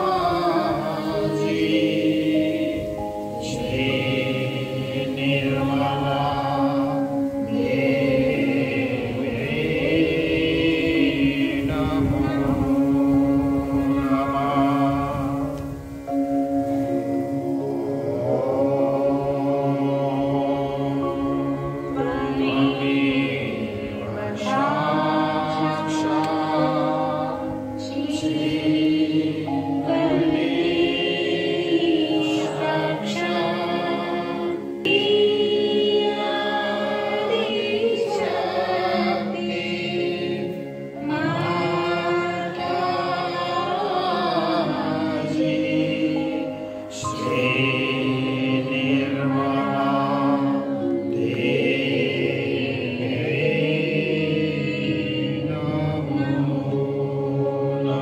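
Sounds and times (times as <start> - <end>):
group singing a chant: 0.0 - 58.0.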